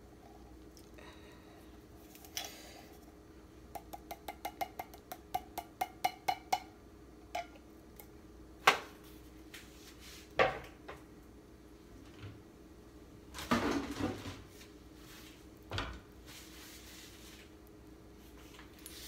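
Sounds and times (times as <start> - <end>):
utensil tapping on metal can: 3.7 - 6.7.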